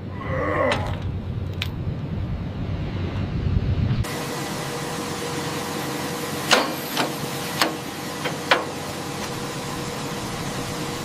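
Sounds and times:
steady hiss: 4.0 - 11.0
hand tools knocking on metal: 6.5 - 8.8.

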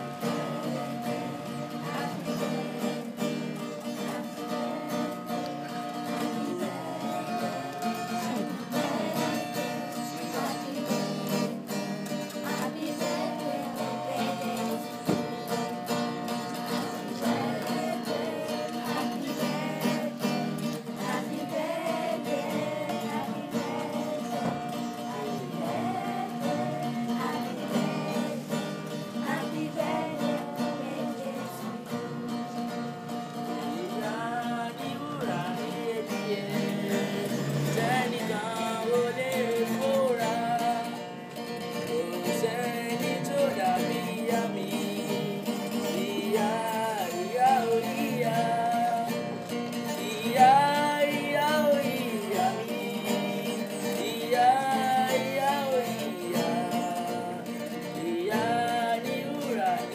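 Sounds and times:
children singing: 0.0 - 59.9
instrumental accompaniment: 0.0 - 59.9.

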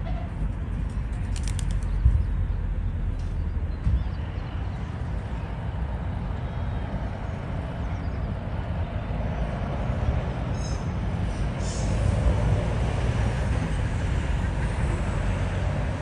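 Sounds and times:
miniature train rumbling: 11.2 - 16.0.

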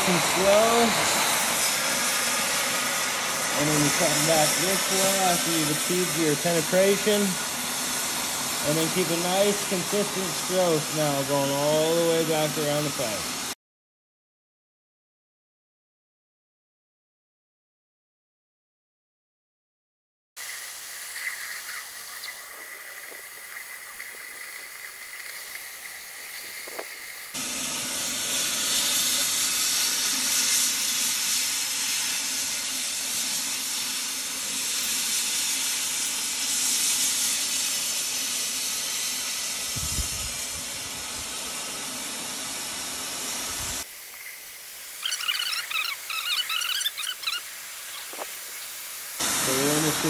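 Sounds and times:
cutting torch hissing: 0.0 - 13.6, 20.4 - 50.0
short high squeaks: 45.0 - 48.3.

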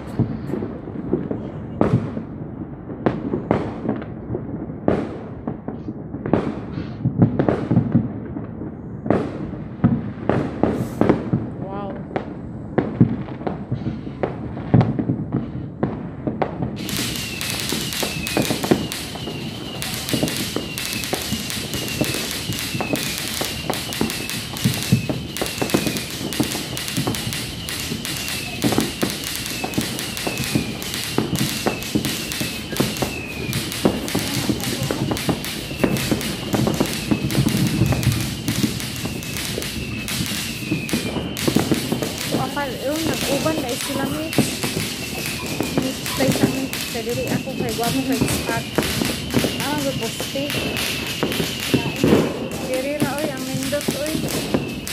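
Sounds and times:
fireworks bangs and pops: 0.0 - 54.9
short falling whistle: 16.8 - 26.2, 37.0 - 41.8.

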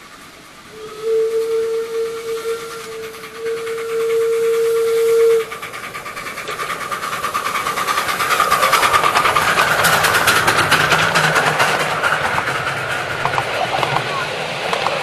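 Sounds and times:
steam hissing: 0.0 - 15.0
steam locomotive chuffing: 0.0 - 15.0
steam whistle: 0.7 - 5.6.

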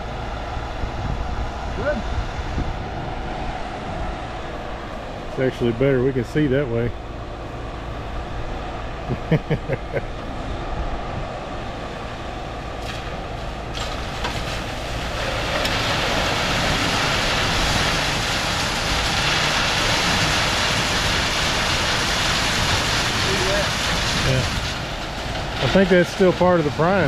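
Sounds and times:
concrete pump truck running: 0.0 - 27.0
hissing wash: 10.3 - 27.0.

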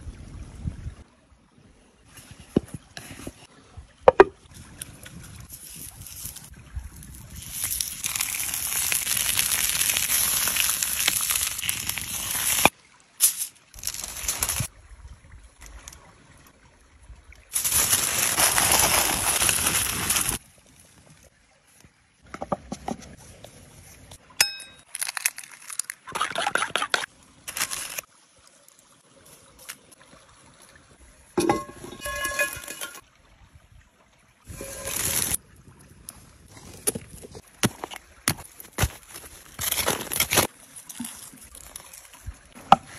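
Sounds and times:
short ringing clink: 24.4 - 24.8.

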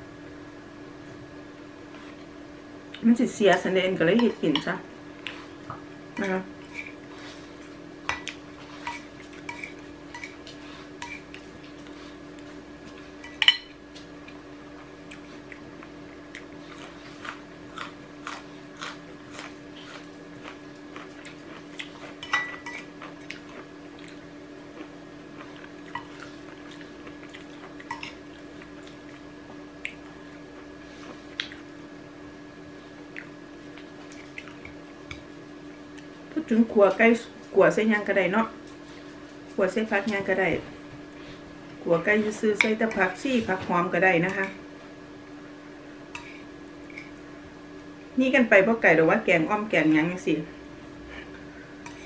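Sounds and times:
steady low hum: 0.0 - 52.0
cutlery clinking on ceramic bowl: 13.2 - 13.8, 22.2 - 22.9.

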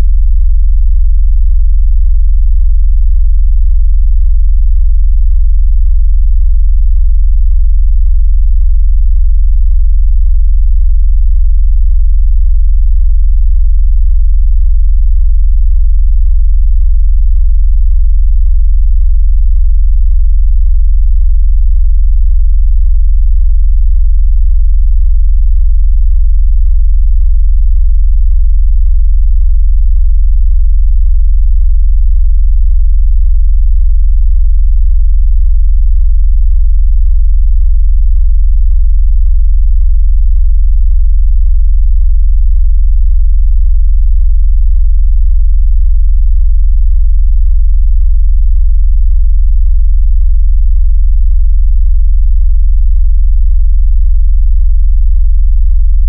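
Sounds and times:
very low synthetic bass tone: 0.0 - 41.6, 42.4 - 45.6.

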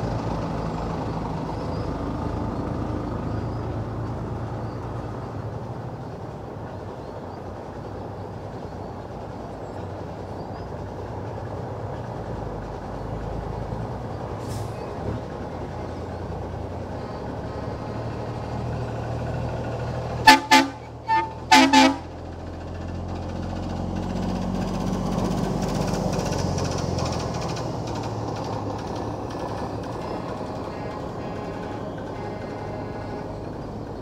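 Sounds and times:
heavy trucks passing: 0.0 - 34.0
truck horn toots: 20.2 - 22.2, 29.9 - 33.7.

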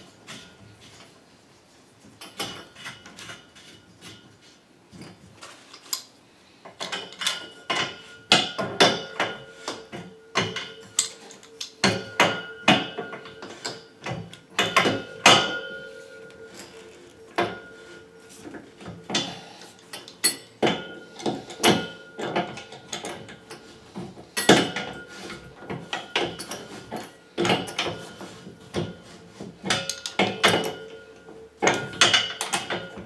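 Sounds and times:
spanner clicking and scraping on metal: 29.6 - 33.0.

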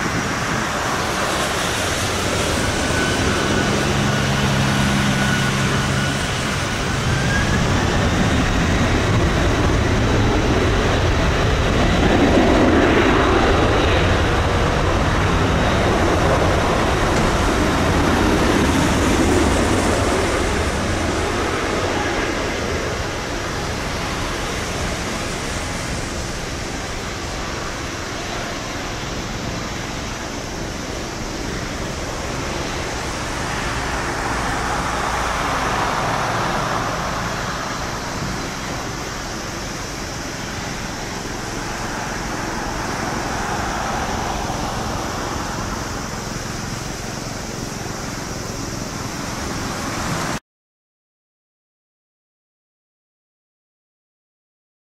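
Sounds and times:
jet engines spooling up whine: 0.0 - 50.4
jet roar on takeoff roll: 0.0 - 50.4.

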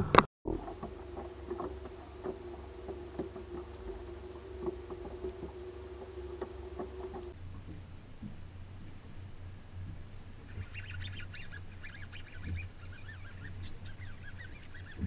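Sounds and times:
boat engine idling: 0.0 - 7.4
light clicks and knocks: 0.5 - 7.4.

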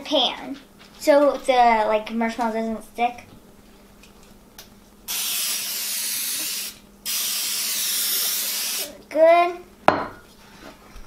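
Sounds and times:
cooking spray hissing into metal pan: 5.1 - 8.9.

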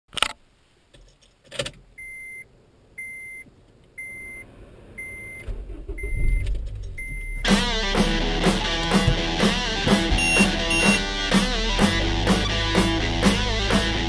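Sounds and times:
car warning chime beeping: 2.0 - 8.0, 9.8 - 11.2
car engine starting: 4.4 - 14.0.

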